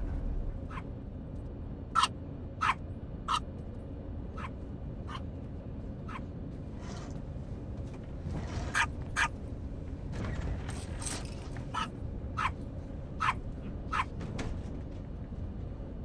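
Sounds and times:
airliner cabin drone: 0.0s - 16.0s
small dog yapping: 2.0s - 3.4s, 11.7s - 12.6s, 13.2s - 14.1s.

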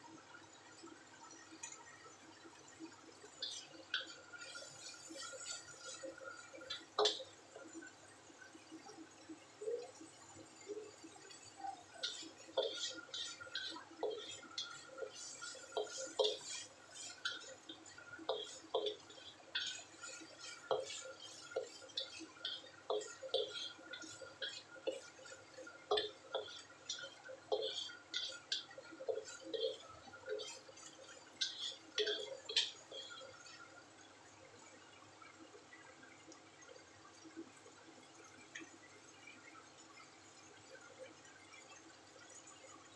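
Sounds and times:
light sizzle: 1.4s - 42.8s
spatula scraping and knocking wok: 3.4s - 7.7s, 11.9s - 33.6s.

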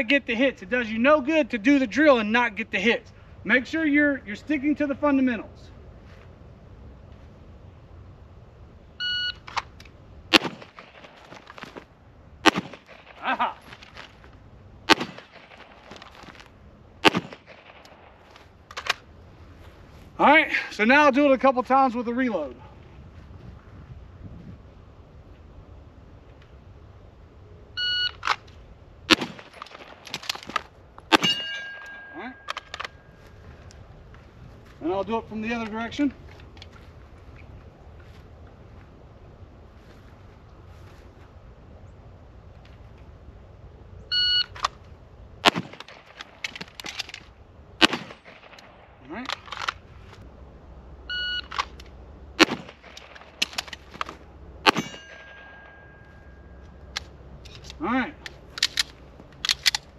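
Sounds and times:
electronic timer beep: 9.0s - 9.4s, 51.1s - 51.5s
handgun shots: 12.4s - 13.2s, 14.9s - 15.7s, 47.8s - 48.7s, 54.7s - 55.7s
steel targets clanging: 31.1s - 33.1s, 54.7s - 56.6s.

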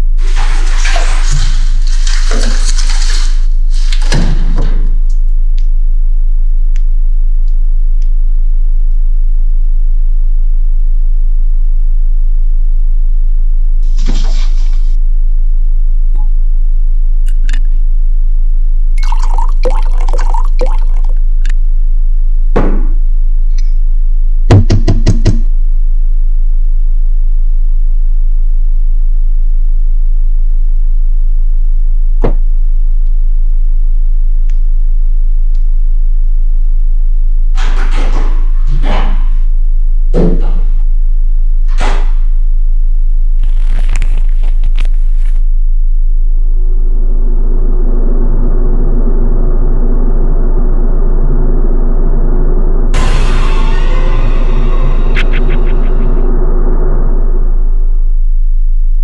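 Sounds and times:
thud: 3.8s - 5.0s, 53.0s - 56.9s
liquid pouring into a glass: 19.0s - 21.2s
loud knocks: 24.5s - 25.4s
steady low hum: 44.1s - 59.0s.

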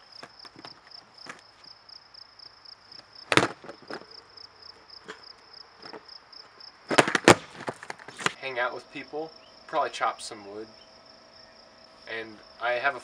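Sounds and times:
insect chirping: 0.0s - 13.0s
skateboard knocking onto board: 3.3s - 4.0s, 6.9s - 8.4s.

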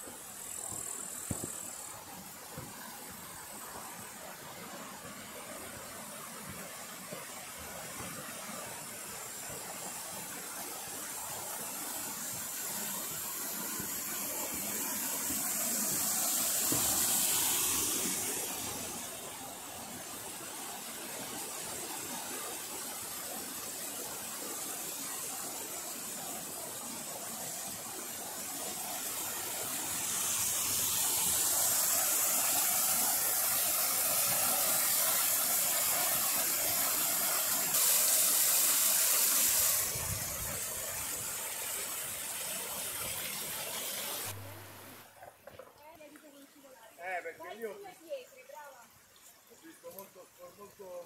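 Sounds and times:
stream rushing over rocks: 0.0s - 51.0s.

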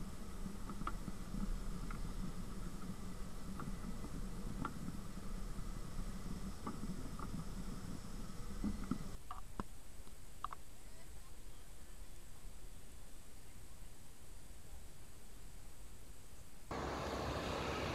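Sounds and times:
wind buffeting camera: 0.0s - 10.7s.

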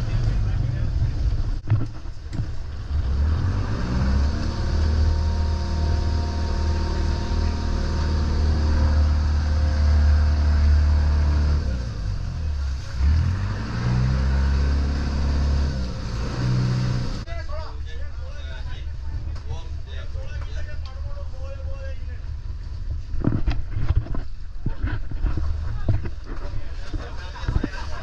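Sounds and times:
boat engine running: 0.0s - 17.3s, 18.4s - 28.0s
water rushing along hull: 0.2s - 17.2s.

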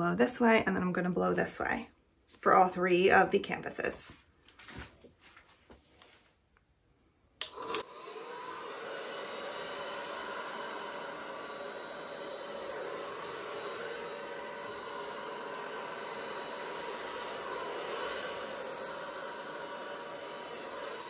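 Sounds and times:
hair dryer running: 7.4s - 21.0s.

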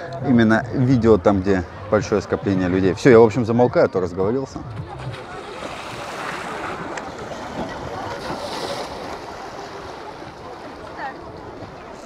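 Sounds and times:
sea waves lapping and splashing: 3.8s - 12.0s
wind on microphone: 4.5s - 12.0s.

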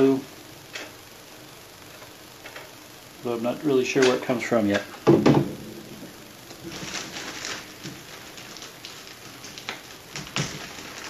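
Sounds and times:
plastic bags crinkling: 6.5s - 11.0s.

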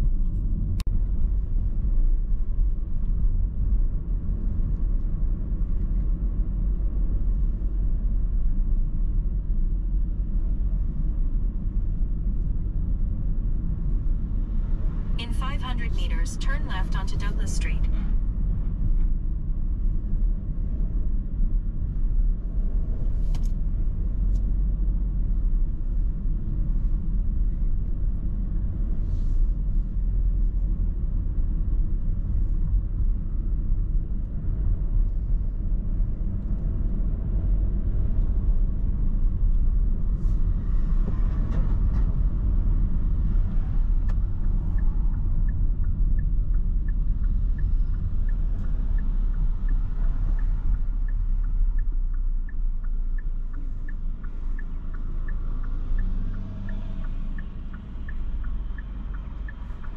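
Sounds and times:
car road and engine rumble: 0.0s - 59.9s
turn signal ticking: 10.0s - 18.7s, 29.6s - 59.9s.

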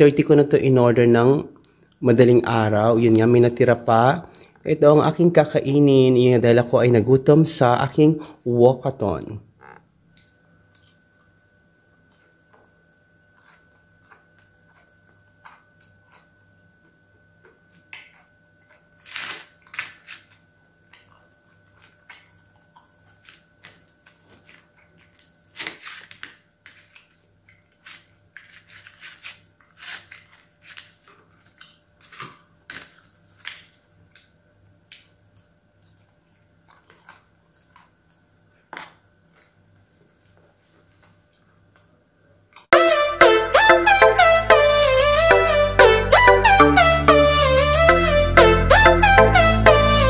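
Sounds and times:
faint steady hum: 0.0s - 28.8s
person chewing pizza: 9.6s - 41.9s.

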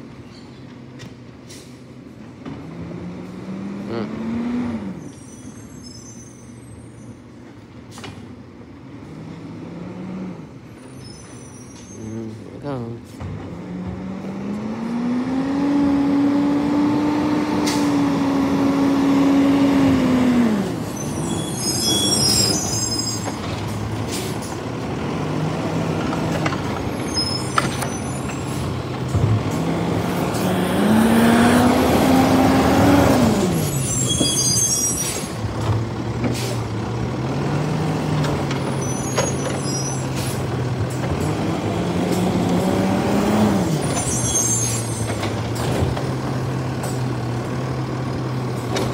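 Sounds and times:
truck diesel engine revving: 2.6s - 5.2s, 8.9s - 10.8s, 12.0s - 44.2s
air brake hisses: 36.3s - 36.6s.

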